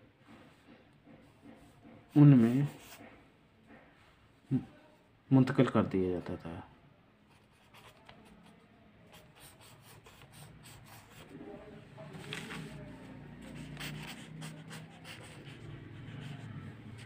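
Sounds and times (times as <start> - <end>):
marker pen scratching on paper: 1.2 - 3.3, 7.3 - 11.6, 12.2 - 17.0.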